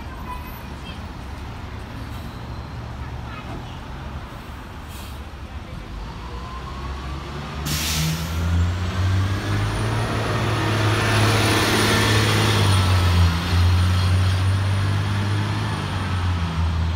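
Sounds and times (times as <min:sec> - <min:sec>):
diesel bus engine accelerating: 0:04.4 - 0:16.9
bus air brake hiss: 0:04.8 - 0:05.4, 0:07.6 - 0:08.6.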